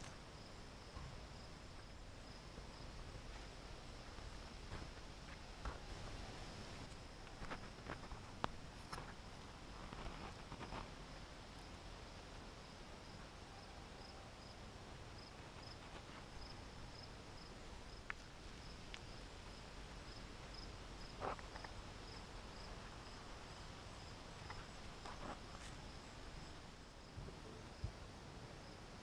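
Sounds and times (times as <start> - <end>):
cricket chirping: 0.0 - 11.9, 12.6 - 29.0.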